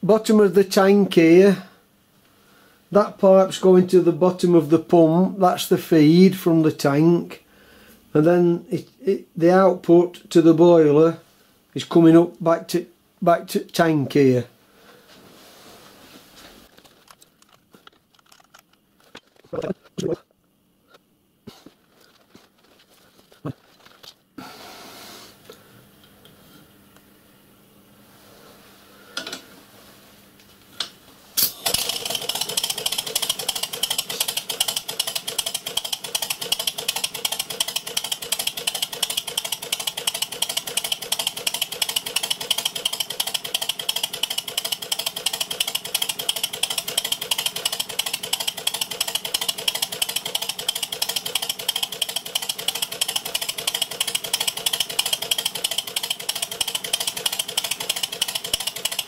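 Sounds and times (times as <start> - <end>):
model steam engine air exhaust: 31.4 - 59.0.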